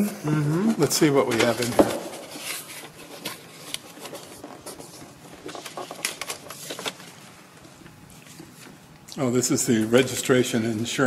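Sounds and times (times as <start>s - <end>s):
papers rustling: 0.8s - 9.0s.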